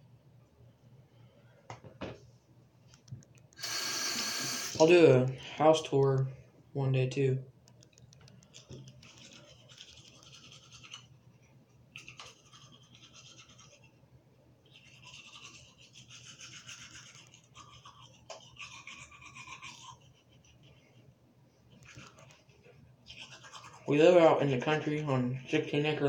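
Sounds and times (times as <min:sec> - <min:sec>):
toothbrush scrubbing teeth: 0:08.4 - 0:11.2, 0:11.9 - 0:14.0, 0:14.6 - 0:21.0, 0:21.7 - 0:25.9.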